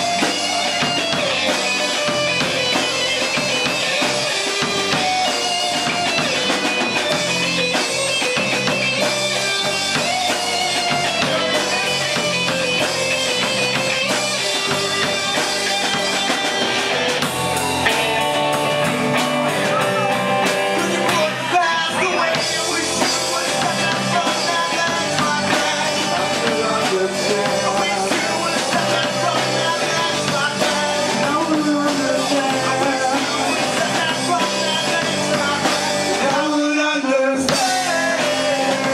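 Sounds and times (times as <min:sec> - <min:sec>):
drum kit: 0:00.0 - 0:38.9
guitar: 0:00.0 - 0:38.9
person singing: 0:19.4 - 0:38.9.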